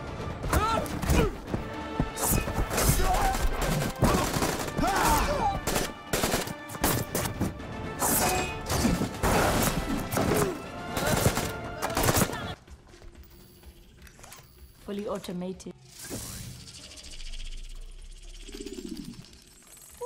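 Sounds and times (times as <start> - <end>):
dramatic score music: 0.0 - 15.8
gunshots: 2.3 - 7.4, 8.0 - 12.6.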